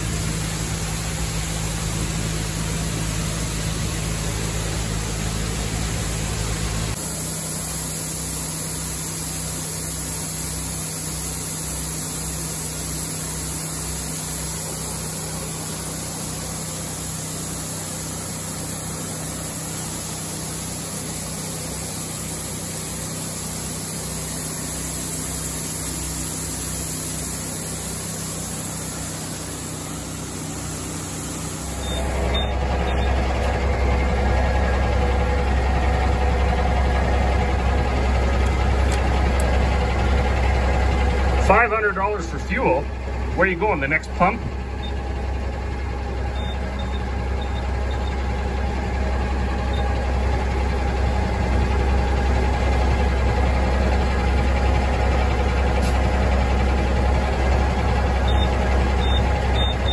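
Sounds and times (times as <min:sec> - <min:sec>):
diesel truck idling: 0:00.0 - 0:59.9
grain auger engine throbbing: 0:00.0 - 0:59.9.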